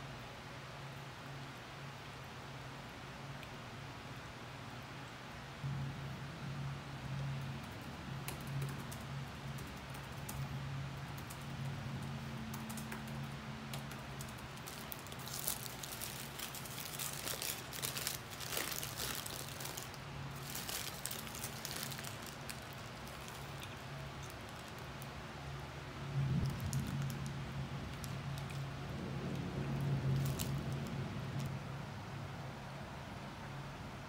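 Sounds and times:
steady low hum: 0.0s - 34.0s
paper wrapper crinkling: 12.1s - 25.2s, 26.3s - 27.3s, 30.0s - 31.5s.

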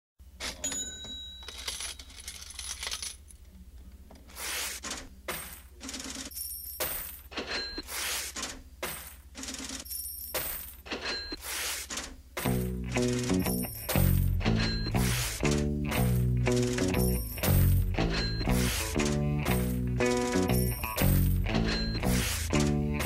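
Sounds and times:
coins dropping and clinking: 0.4s - 3.3s, 5.3s - 7.8s, 8.9s - 11.4s, 12.4s - 22.8s
music: 12.5s - 23.0s.

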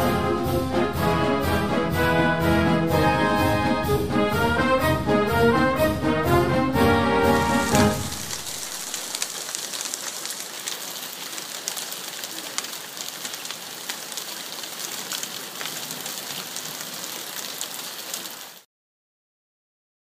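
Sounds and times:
rain hissing on wooden deck: 6.9s - 18.7s
hail pellets ticking: 7.4s - 18.6s.

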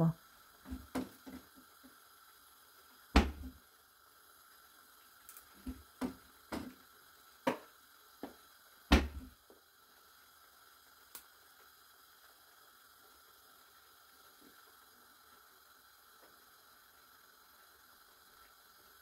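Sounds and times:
knocks and clicks in a frying pan: 3.2s - 3.6s, 5.6s - 6.8s, 7.4s - 9.3s.

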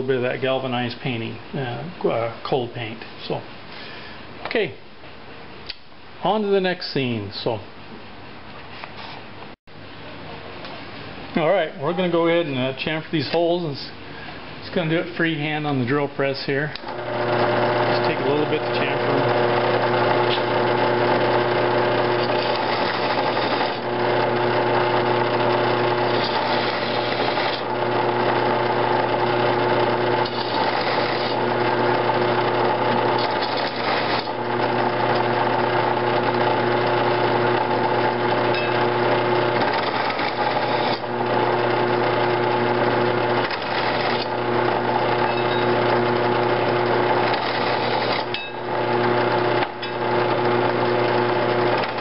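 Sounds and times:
drill bit cutting metal: 16.8s - 52.0s
drill press motor running: 16.8s - 52.0s.

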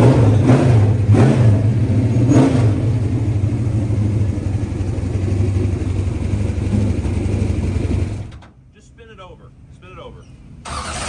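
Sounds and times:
race car engine idling loudly: 0.0s - 8.4s.

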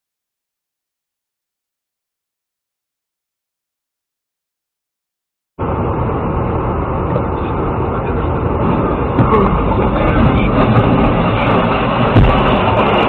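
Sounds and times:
road and engine noise: 5.6s - 13.0s
truck crash knock and clicks: 12.0s - 12.7s.

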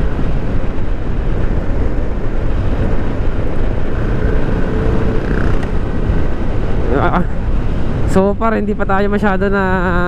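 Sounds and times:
road rumble: 0.0s - 10.0s
wind noise: 0.0s - 10.0s
scooter engine running: 1.4s - 6.5s.

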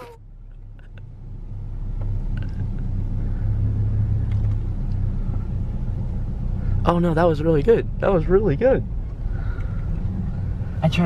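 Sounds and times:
pickup truck engine pulling away: 0.0s - 10.9s.

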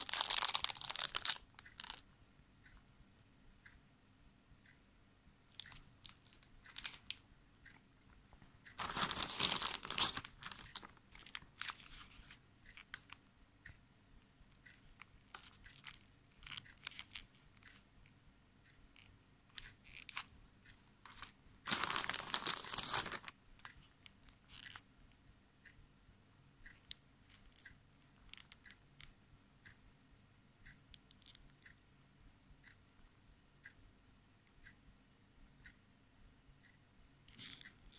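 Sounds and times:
plastic bags crinkling: 0.0s - 2.0s, 8.8s - 12.1s, 21.1s - 23.3s.

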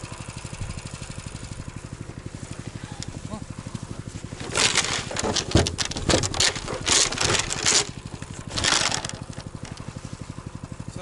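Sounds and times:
small engine idling: 0.0s - 11.0s
snow crunching and scraping: 1.9s - 5.6s.

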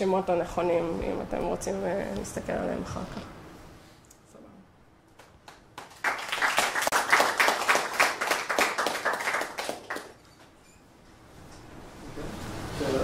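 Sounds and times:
audience applauding: 5.2s - 10.2s.

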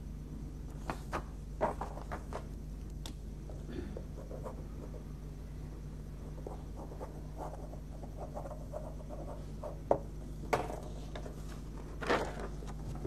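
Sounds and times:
steady low hum: 0.0s - 13.0s
paper rustling: 11.1s - 13.0s.

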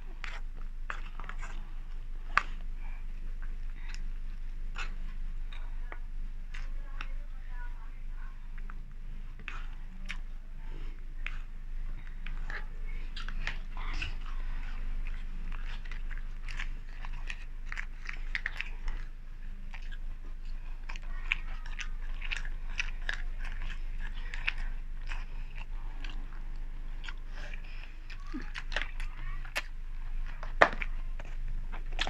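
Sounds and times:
chewing and mouth sounds: 0.0s - 32.0s
low hum: 0.0s - 32.0s
food crunches: 11.9s - 26.2s.

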